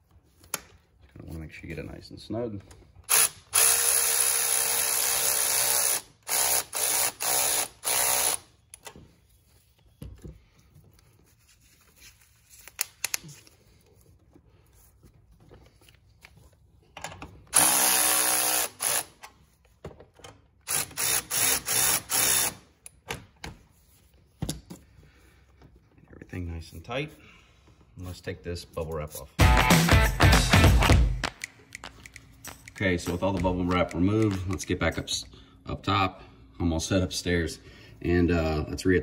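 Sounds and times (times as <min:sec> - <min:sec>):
electric ratchet spinning: 0:03.1 - 0:08.5, 0:17.6 - 0:19.2, 0:20.7 - 0:22.6.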